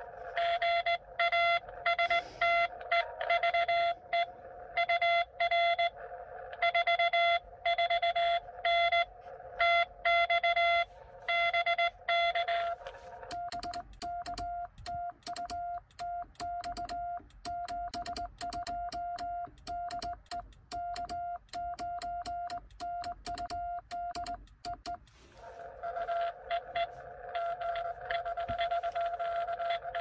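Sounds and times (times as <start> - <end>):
morse code beeps: 0.4 - 2.7, 6.6 - 25.2, 26.1 - 30.0
sidetone beeping dots and dashes: 7.2 - 25.0, 26.0 - 30.0
morse key clicking: 13.2 - 25.1.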